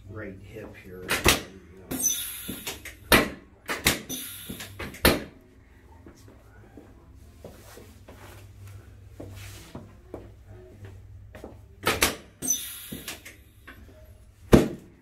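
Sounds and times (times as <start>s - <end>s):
quiet shuffling: 5.5s - 11.8s.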